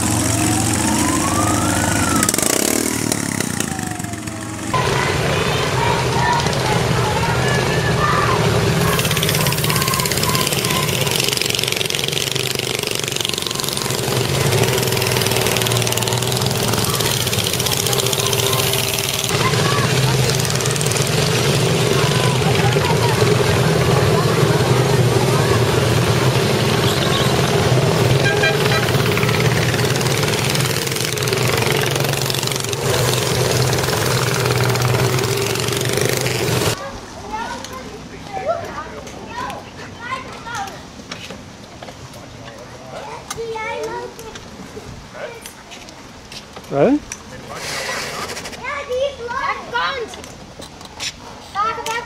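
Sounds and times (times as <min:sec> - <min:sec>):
small petrol engines running: 0:00.0 - 0:36.8.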